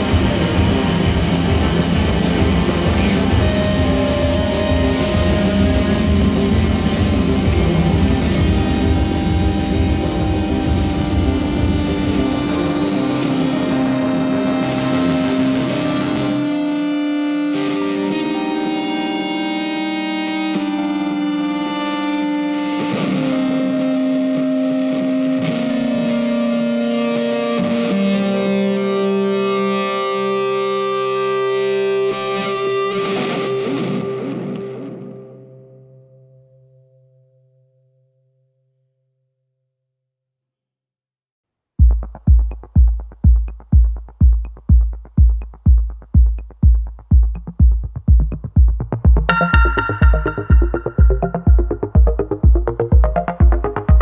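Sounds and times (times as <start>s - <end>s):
heavy kick drum: 0.0s - 12.5s, 41.8s - 54.0s
electronic dance music: 0.0s - 16.8s, 41.9s - 54.0s
electric guitar sustained chords: 0.0s - 38.1s, 49.2s - 54.0s.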